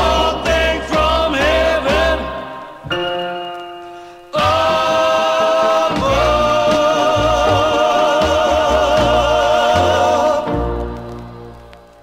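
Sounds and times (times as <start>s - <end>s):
vocal group singing in close harmony: 0.0s - 2.9s, 4.3s - 11.0s
band playing: 0.0s - 12.0s.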